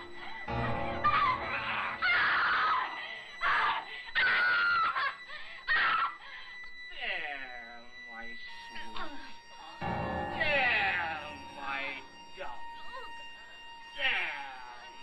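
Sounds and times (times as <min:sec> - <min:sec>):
woman screaming in distress: 0:01.0 - 0:06.2.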